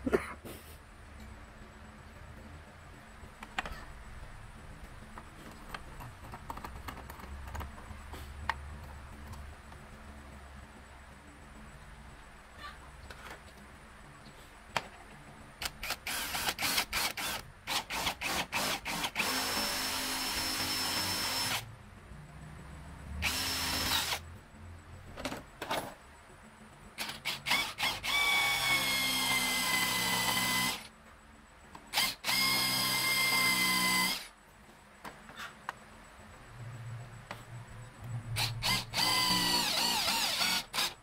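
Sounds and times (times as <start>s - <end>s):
electric drill whining: 15.8s - 21.6s, 23.2s - 24.2s, 27.0s - 30.9s, 31.9s - 34.3s, 38.4s - 41.0s.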